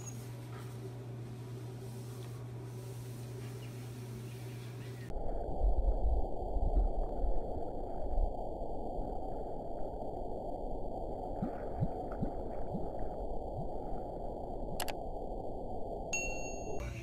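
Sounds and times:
underwater regulator bubbles gurgling: 5.3s - 15.0s.

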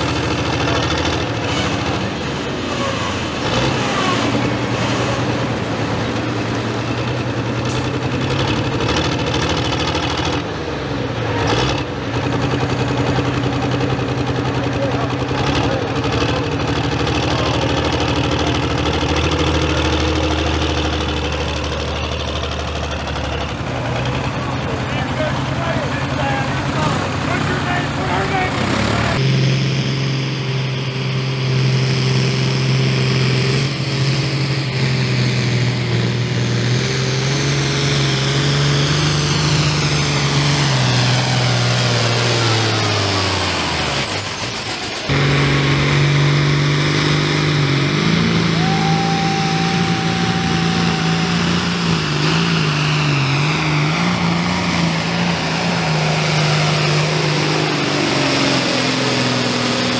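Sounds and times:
pulling tractor engine under load: 0.0s - 29.2s
high turbo whistle: 48.2s - 53.4s.

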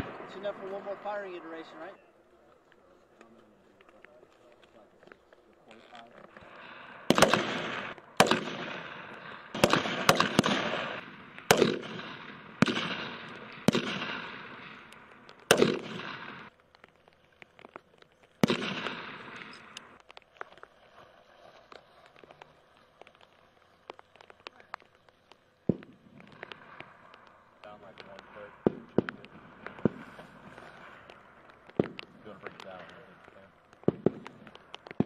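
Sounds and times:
rifle shots with echo: 0.0s - 1.9s, 6.4s - 16.5s, 18.4s - 20.0s, 25.6s - 35.0s.

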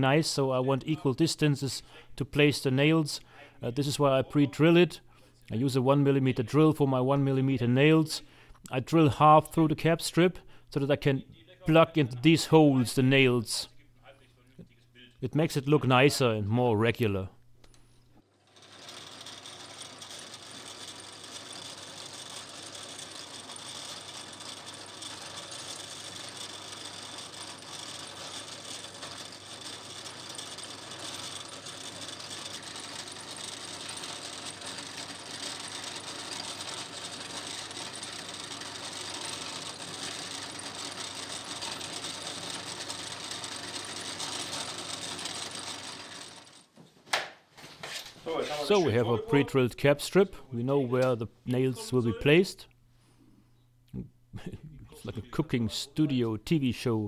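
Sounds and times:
drill press motor whirring: 17.7s - 46.7s.

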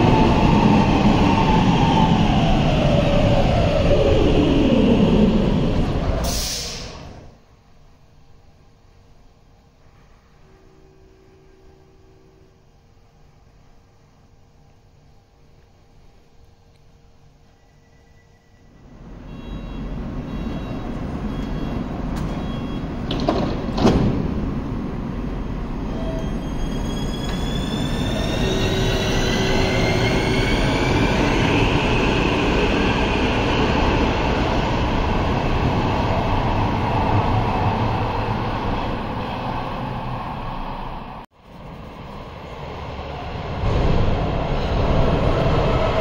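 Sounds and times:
metro train pulling out: 0.0s - 7.4s, 17.0s - 46.0s
steady train rumble: 0.0s - 46.0s.

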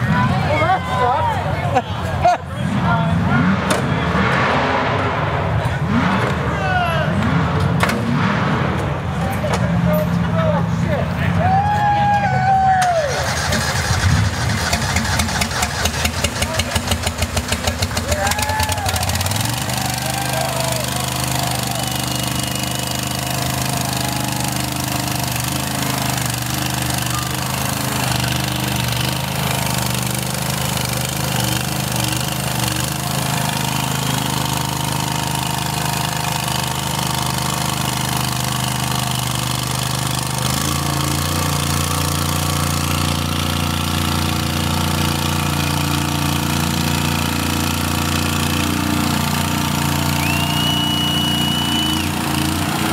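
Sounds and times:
lawn mower engine running: 12.8s - 52.9s.

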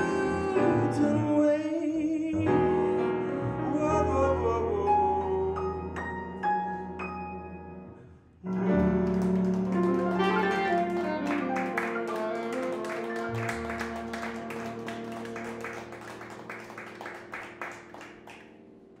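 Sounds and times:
jazz ballad on piano and bass: 0.0s - 18.3s
light scattered clapping: 8.5s - 18.5s.

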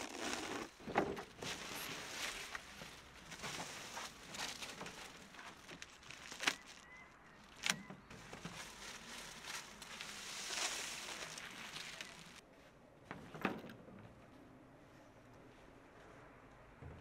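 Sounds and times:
plastic film crinkling: 1.3s - 12.4s.

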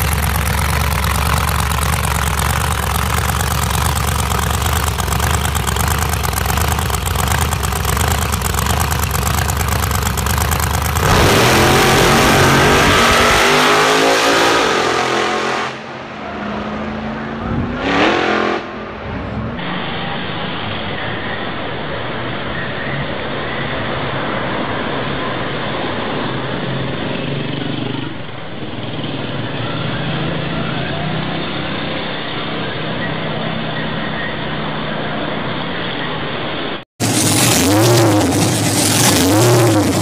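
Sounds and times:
drag car engine revving: 0.0s - 21.6s, 37.0s - 40.0s
car in street traffic: 0.0s - 40.0s.

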